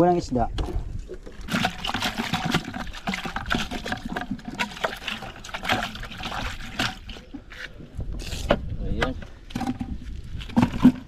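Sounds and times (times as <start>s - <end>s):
water sloshing in plastic tub: 1.1s - 7.8s, 9.5s - 11.0s.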